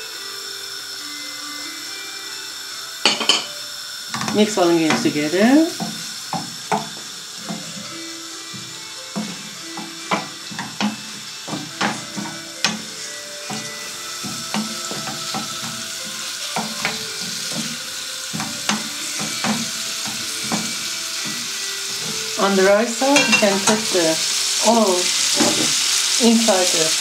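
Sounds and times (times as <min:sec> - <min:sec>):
food sizzling in frying pan: 0:00.0 - 0:27.0
wooden spatula knocking and scraping pan: 0:05.8 - 0:07.9, 0:08.5 - 0:24.2.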